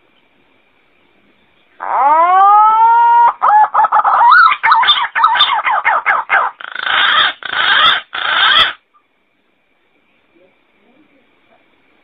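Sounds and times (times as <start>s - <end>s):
harsh rasping bird calls: 1.6s - 9.1s.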